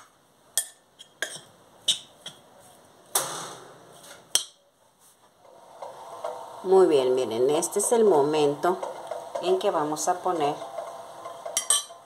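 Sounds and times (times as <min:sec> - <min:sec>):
spoon scraping bowl: 0:08.8 - 0:12.0
metal spoon clinking on bowl: 0:11.6 - 0:12.0.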